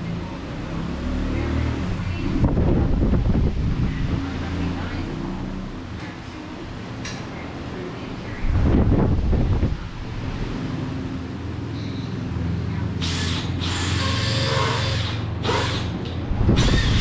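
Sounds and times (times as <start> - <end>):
power drill running: 13.0 - 17.0.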